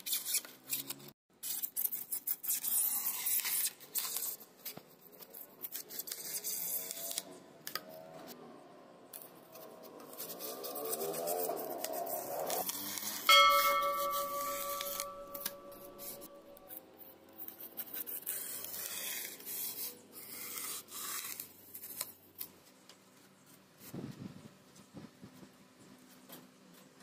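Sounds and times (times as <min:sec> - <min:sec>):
loud ringing tone: 0:13.3 - 0:16.6.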